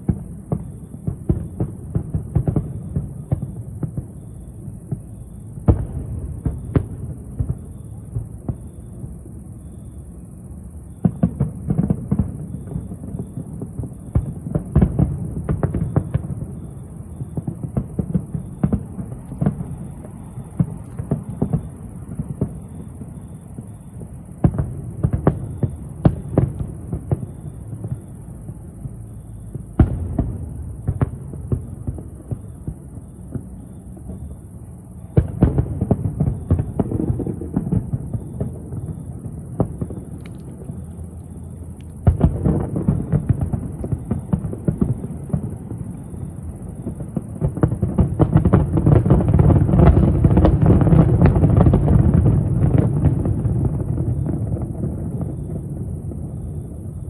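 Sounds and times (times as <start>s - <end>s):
fireworks bangs and booms: 0.0s - 57.0s
fireworks crackle: 0.0s - 57.0s.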